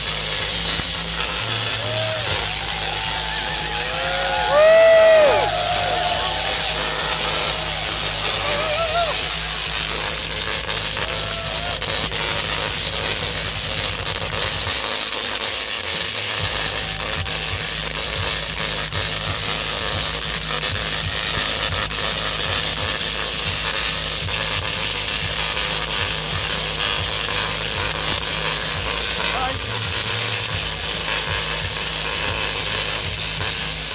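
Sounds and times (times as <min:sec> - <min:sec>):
low hum: 0:00.0 - 0:14.6
electric arcs buzzing and crackling: 0:00.0 - 0:33.9.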